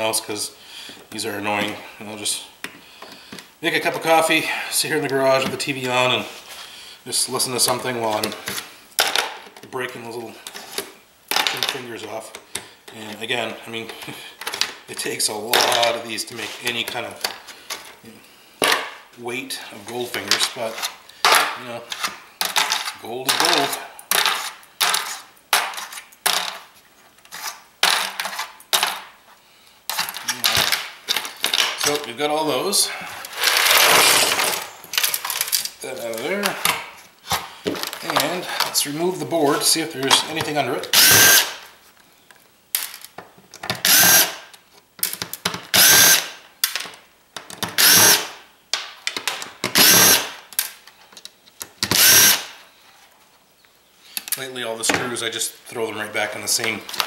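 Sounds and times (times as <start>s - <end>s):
power screwdriver whirring: 33.4s - 34.8s, 41.0s - 41.6s, 43.8s - 44.4s, 45.8s - 46.3s, 47.8s - 48.3s, 49.8s - 50.3s, 51.9s - 52.5s.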